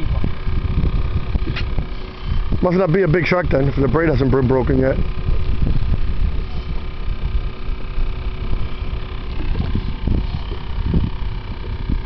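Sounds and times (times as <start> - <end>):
faint steady hum: 0.0 - 12.0
wind buffeting microphone: 0.0 - 12.0.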